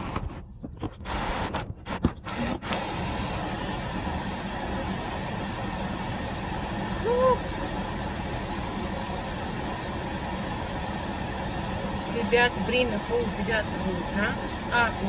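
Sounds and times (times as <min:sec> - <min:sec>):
car engine hum inside cabin: 0:00.0 - 0:15.0
person humming: 0:07.0 - 0:07.5.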